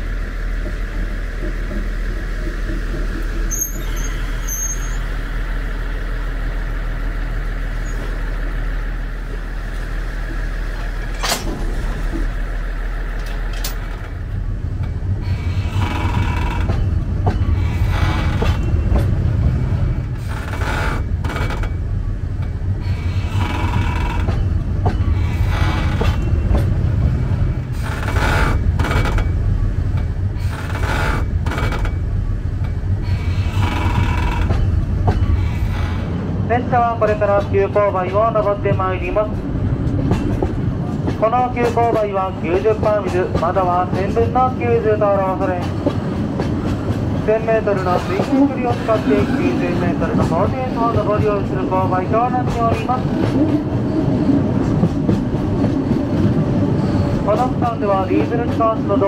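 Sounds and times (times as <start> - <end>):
low rumble: 0.0 - 30.5
train machinery running: 0.0 - 59.0.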